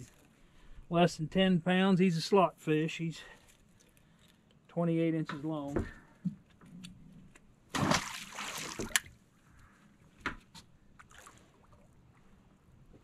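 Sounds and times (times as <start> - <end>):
water splashing and sloshing: 7.7 - 9.3, 10.5 - 13.0.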